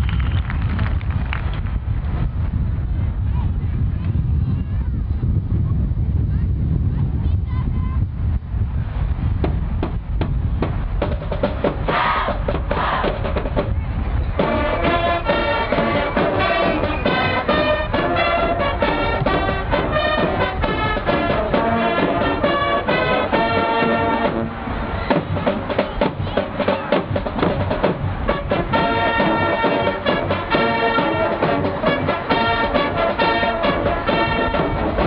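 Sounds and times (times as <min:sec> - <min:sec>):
marching drums: 0:09.4 - 0:35.0
brass playing a tune: 0:14.4 - 0:35.0.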